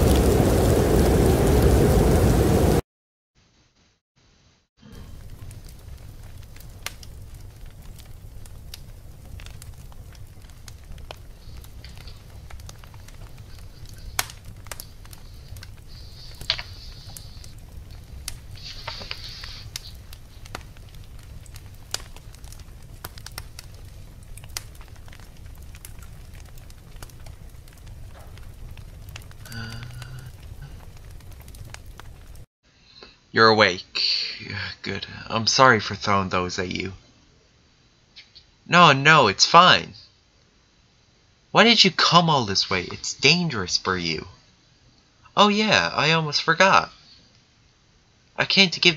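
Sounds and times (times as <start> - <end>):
fire crackling and popping: 0.0 - 2.8, 4.8 - 32.5
short hisses: 13.6 - 20.5.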